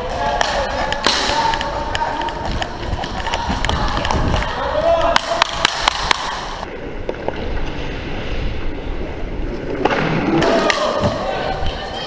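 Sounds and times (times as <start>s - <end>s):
inline skates rolling: 0.0s - 12.0s
hockey stick clacks: 0.2s - 6.5s.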